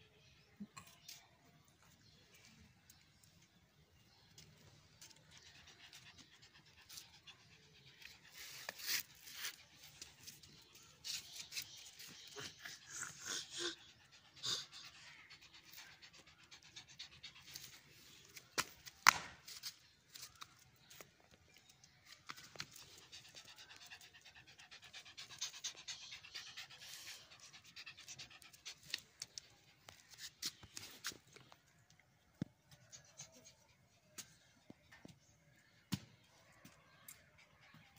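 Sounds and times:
small dog panting: 0:22.4 - 0:31.3.

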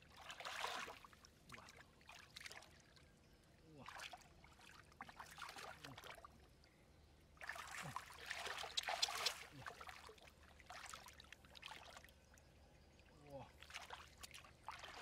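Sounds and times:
hands splashing in muddy water: 0:07.4 - 0:10.1.

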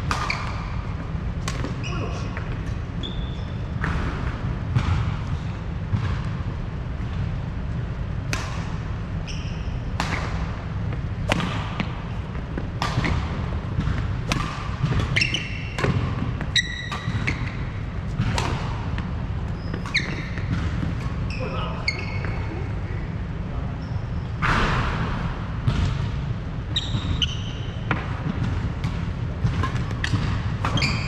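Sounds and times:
racket hitting shuttlecock: 0:00.0 - 0:01.8, 0:08.2 - 0:09.0, 0:09.9 - 0:19.1, 0:19.7 - 0:21.2, 0:27.9 - 0:31.0
low rumble of hall: 0:00.0 - 0:31.0
sneaker squeaks on wooden floor: 0:01.7 - 0:03.8, 0:09.2 - 0:10.0, 0:14.8 - 0:18.4, 0:19.5 - 0:22.5, 0:23.8 - 0:24.4, 0:26.7 - 0:27.9, 0:30.0 - 0:31.0.

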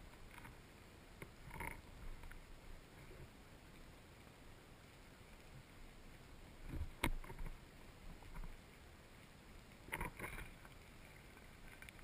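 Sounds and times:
faint hiss: 0:00.0 - 0:12.0
underwater knocks and clicks: 0:01.2 - 0:02.4, 0:06.6 - 0:08.6, 0:09.8 - 0:10.8.

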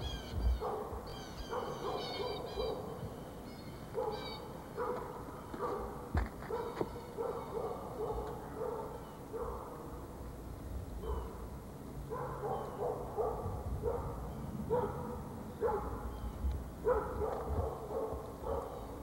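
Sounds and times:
dog barking: 0:00.6 - 0:03.0, 0:03.9 - 0:09.9, 0:11.0 - 0:11.4, 0:12.1 - 0:16.1, 0:16.8 - 0:19.0.

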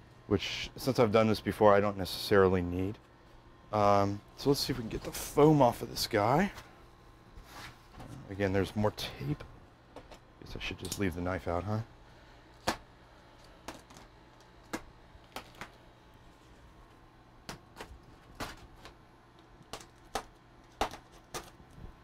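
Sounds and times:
packing tape crackling: 0:13.4 - 0:22.0.

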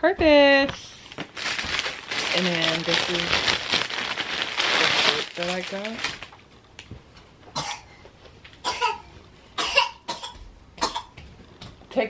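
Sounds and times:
young child coughing: 0:07.6 - 0:07.9, 0:08.6 - 0:11.2.

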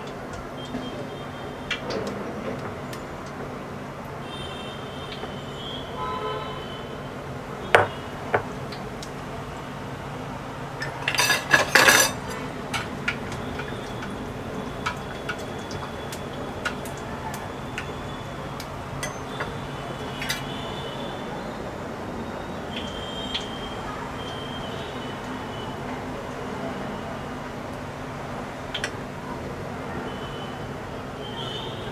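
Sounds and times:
steel spoon clinking against pan: 0:10.8 - 0:14.1, 0:19.0 - 0:19.6.

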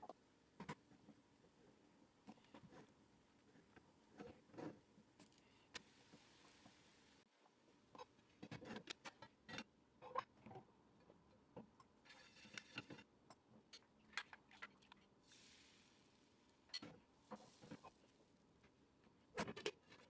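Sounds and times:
batter hissing in hot pan: 0:15.2 - 0:16.3.

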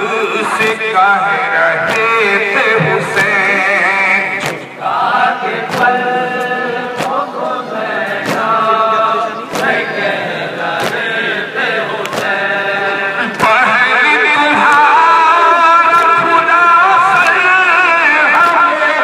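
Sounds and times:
mourning lament chanted: 0:00.0 - 0:19.0
hands beating on chests: 0:01.8 - 0:03.6, 0:04.4 - 0:04.7, 0:05.7 - 0:06.0, 0:06.9 - 0:07.3, 0:08.1 - 0:08.6, 0:09.5 - 0:09.8, 0:10.7 - 0:11.1, 0:12.0 - 0:12.5, 0:15.9 - 0:16.3, 0:17.1 - 0:17.5, 0:18.4 - 0:18.6.

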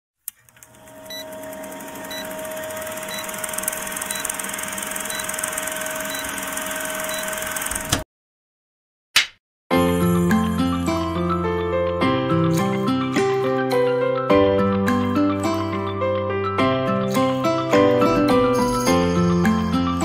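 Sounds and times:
film projector clattering and whirring: 0:00.3 - 0:08.0.

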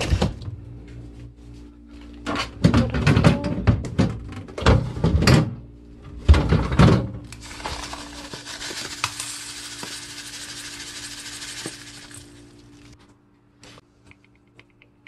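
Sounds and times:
granules pouring into metal bowl: 0:07.4 - 0:13.0.

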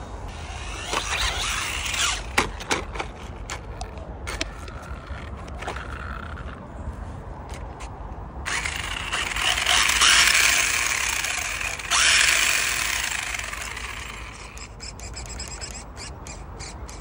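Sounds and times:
electric motor whirring: 0:00.3 - 0:02.4, 0:08.5 - 0:16.1.

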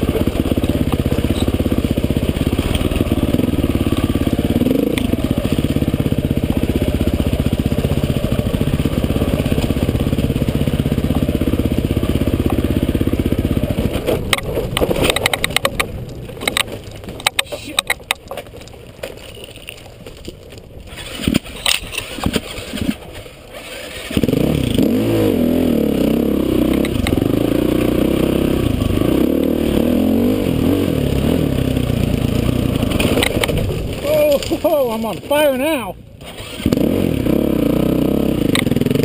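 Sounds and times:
dirt bike engine revving: 0:00.0 - 0:16.6, 0:20.9 - 0:39.0
bike rattling over stones: 0:00.0 - 0:24.8, 0:31.0 - 0:36.8.

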